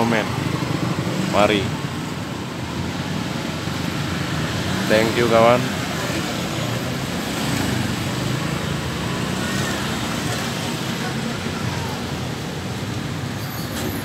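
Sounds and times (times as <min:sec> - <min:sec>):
road traffic: 0:00.0 - 0:14.0
faint voices: 0:10.2 - 0:12.9.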